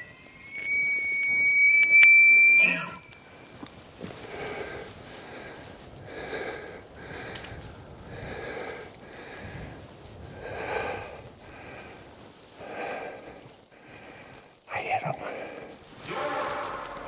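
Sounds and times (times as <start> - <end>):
person breathing hard: 4.0 - 14.6.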